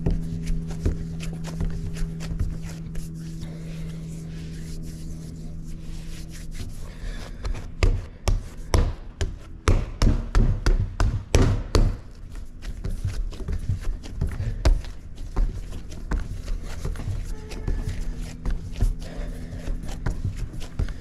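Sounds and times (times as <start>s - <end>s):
steady low hum: 0.0s - 21.0s
dough thumping on work surface: 7.8s - 12.1s.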